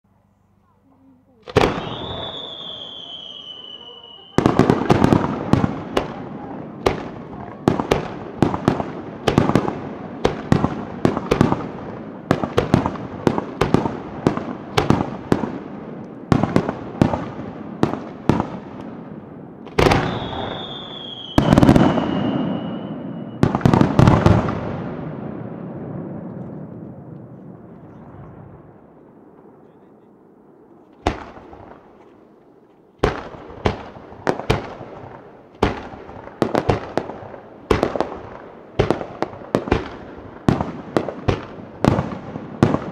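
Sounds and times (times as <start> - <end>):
fireworks bangs: 1.4 - 42.9
fireworks whistle sliding down: 1.7 - 4.3, 19.9 - 23.4.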